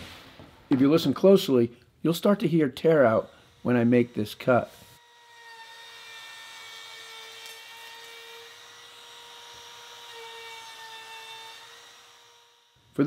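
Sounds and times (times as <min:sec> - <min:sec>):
person talking: 0:00.7 - 0:04.7
router whining while cutting wood: 0:03.1 - 0:13.0.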